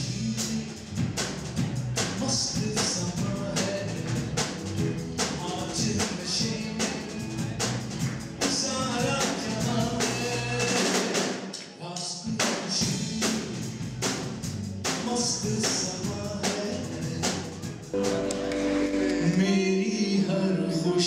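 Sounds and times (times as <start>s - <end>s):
music with percussion beat: 0.4s - 11.5s
person singing: 2.2s - 7.8s, 8.4s - 11.2s, 15.0s - 21.0s.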